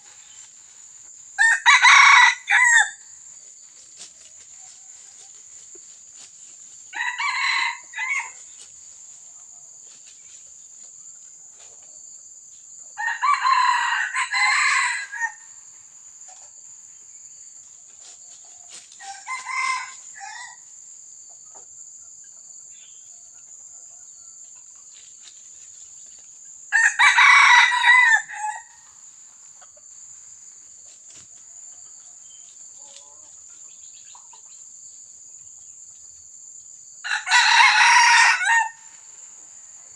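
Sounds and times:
rooster crowing: 1.4 - 3.0, 6.9 - 8.4, 13.0 - 15.5, 19.0 - 20.7, 26.7 - 28.8, 37.0 - 38.9.

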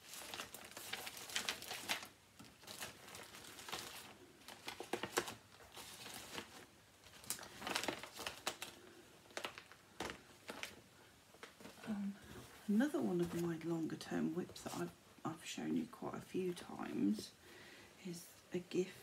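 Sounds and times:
fabric rustling: 0.0 - 15.0.

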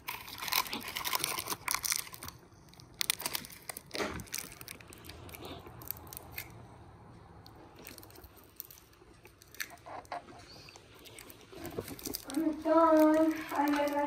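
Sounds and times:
foil crackling: 0.0 - 6.4, 11.0 - 14.0
person chewing crunchy candy: 0.0 - 14.0.

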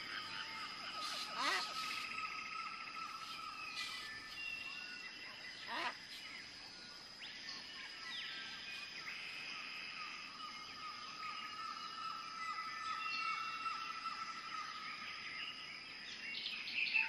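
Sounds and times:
birds chirping and calling: 0.0 - 6.6.

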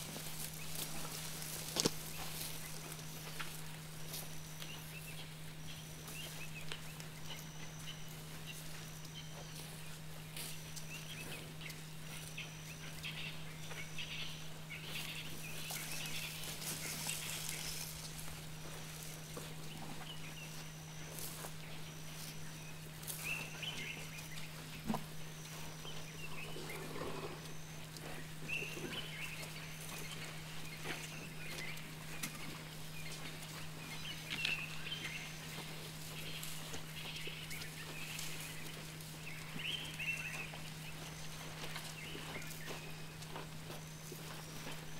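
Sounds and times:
rustling in dry grass: 0.0 - 44.9
steady low hum: 0.0 - 44.9
faint high chirp: 3.0 - 18.0.

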